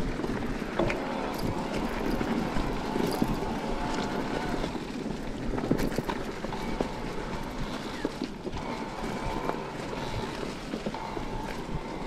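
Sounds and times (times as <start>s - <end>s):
bike rattling: 0.0s - 12.0s
tyres rustling through leaves: 0.0s - 12.0s
wind on microphone: 0.0s - 12.0s.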